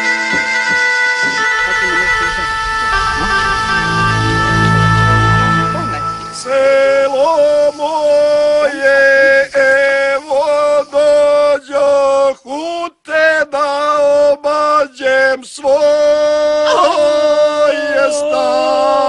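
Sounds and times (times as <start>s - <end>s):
instrumental music: 0.0s - 10.9s
person singing unaccompanied: 5.6s - 19.0s.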